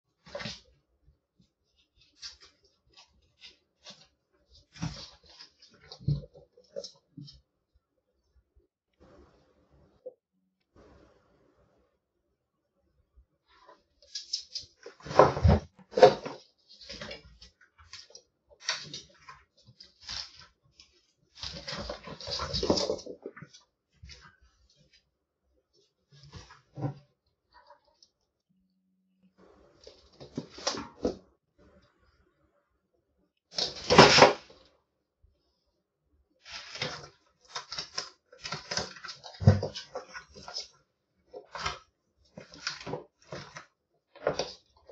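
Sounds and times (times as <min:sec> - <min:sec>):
claws scratching and clattering: 0:14.0 - 0:25.0, 0:36.4 - 0:44.9.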